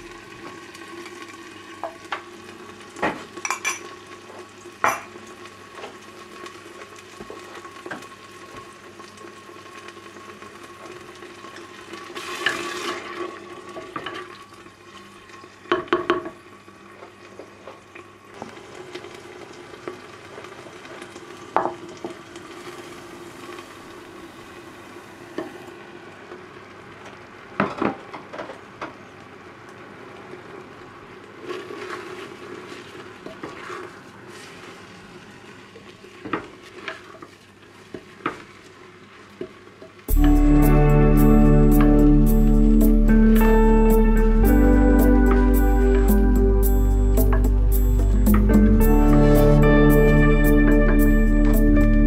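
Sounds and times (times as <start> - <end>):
low sizzle: 0.0 - 52.0.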